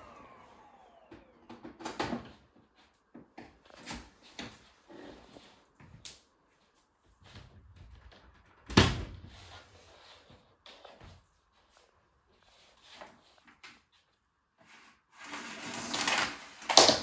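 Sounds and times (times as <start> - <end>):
vacuum cleaner parts clattering: 0.0 - 2.4, 14.7 - 17.0.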